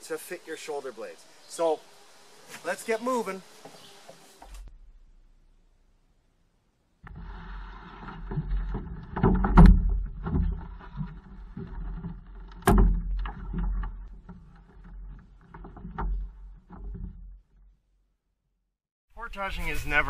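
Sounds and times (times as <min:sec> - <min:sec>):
canoe hull knocks and thumps: 0:07.0 - 0:17.8.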